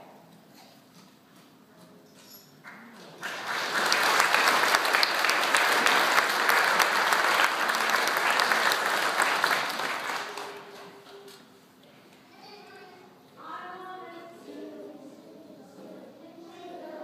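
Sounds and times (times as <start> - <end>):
congregation applauding: 3.1 - 11.1.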